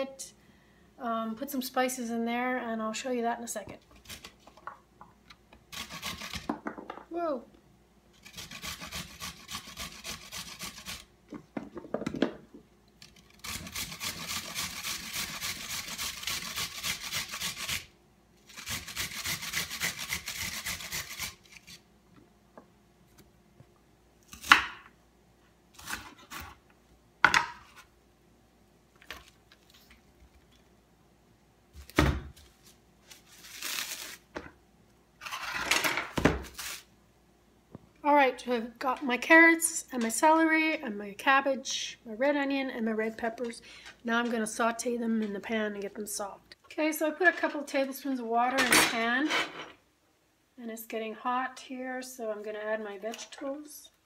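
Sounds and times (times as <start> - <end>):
vegetables rasping on grater: 5.7 - 6.5, 8.2 - 11.1, 13.3 - 17.9, 18.5 - 21.8.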